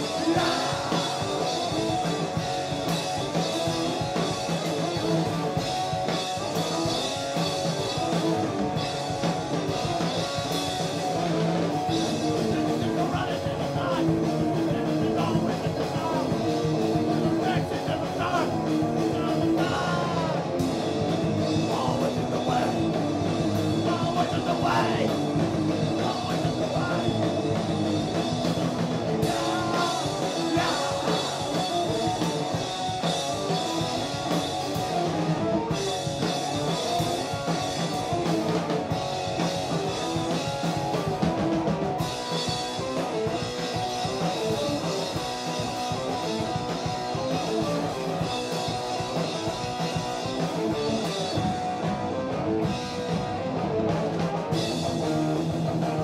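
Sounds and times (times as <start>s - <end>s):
distorted electric guitar: 0.0s - 56.0s
drum kit with cymbals: 0.0s - 56.0s.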